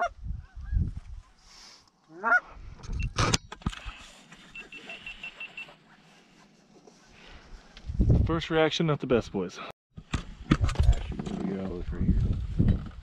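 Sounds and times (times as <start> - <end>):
goose honking: 2.2 - 2.4.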